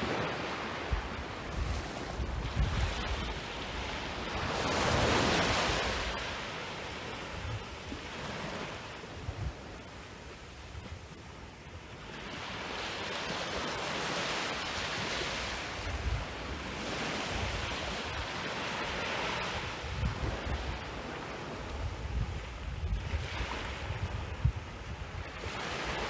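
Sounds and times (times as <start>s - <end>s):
wind buffeting microphone: 0.0s - 11.3s, 12.0s - 26.0s
gentle waves breaking on sand: 0.0s - 26.0s.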